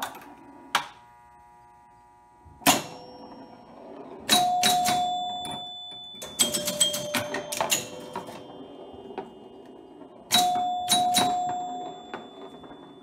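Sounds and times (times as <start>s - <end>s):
pinball mechanical clacks: 2.6s - 13.0s
ringing chime tones: 4.3s - 13.0s.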